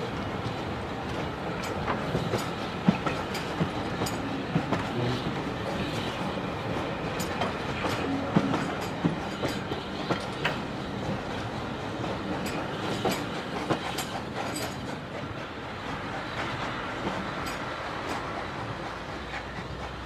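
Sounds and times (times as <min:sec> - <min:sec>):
train wheels rumbling on rails: 0:00.0 - 0:20.0
wheels clicking over track joints: 0:00.3 - 0:05.0.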